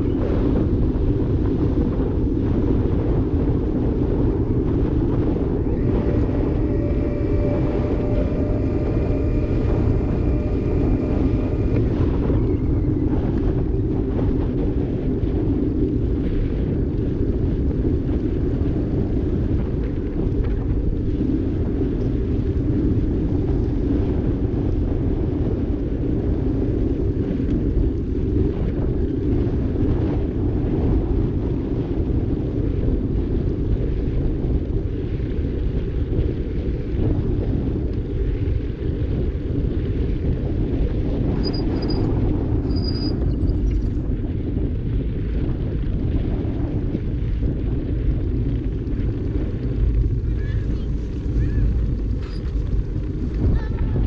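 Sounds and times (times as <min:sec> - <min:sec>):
wind rushing over microphone: 0:00.0 - 0:54.0
thin steady tone: 0:05.0 - 0:13.3, 0:41.4 - 0:44.0
tyre noise on asphalt: 0:34.4 - 0:54.0.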